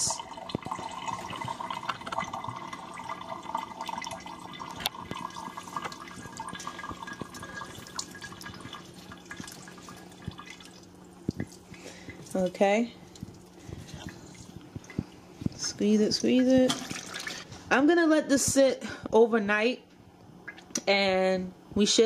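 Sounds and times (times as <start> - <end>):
juice dripping into water: 0.0 - 15.5, 20.4 - 20.8
steady low hum: 0.0 - 22.0.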